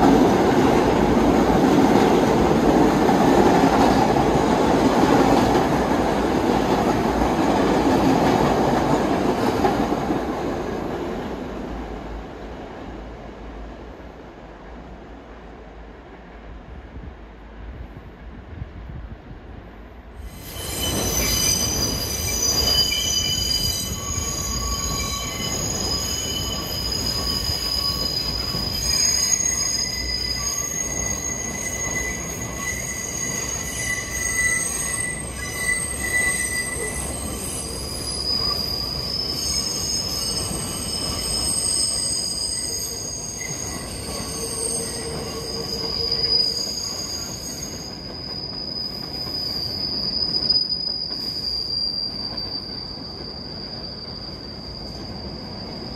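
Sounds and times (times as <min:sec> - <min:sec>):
subway wheels squealing: 0:20.2 - 0:55.9.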